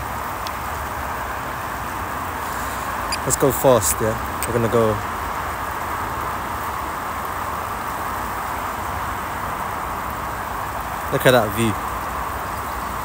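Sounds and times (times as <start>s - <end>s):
distant motorway traffic: 0.0s - 13.0s.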